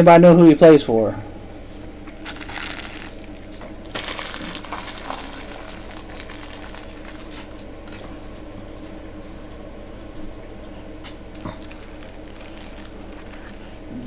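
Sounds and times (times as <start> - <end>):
steady low hum: 0.0 - 14.0
cards and packaging rustling: 2.2 - 7.5, 11.4 - 14.0.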